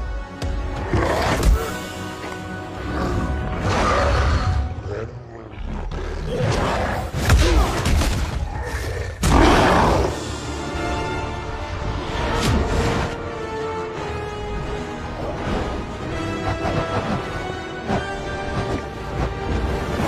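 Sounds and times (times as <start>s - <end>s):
orchestral music: 0.0s - 5.5s, 9.2s - 20.0s
monster growling roar: 2.8s - 7.2s, 8.4s - 10.3s.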